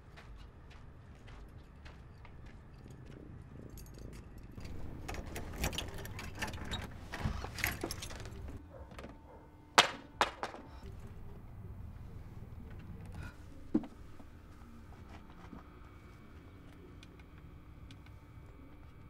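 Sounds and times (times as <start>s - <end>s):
light clinks and clatter: 1.3s - 8.6s.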